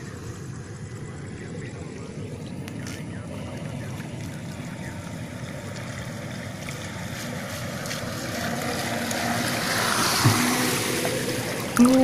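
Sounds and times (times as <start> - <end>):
boat hull hissing through water: 4.7 - 12.0.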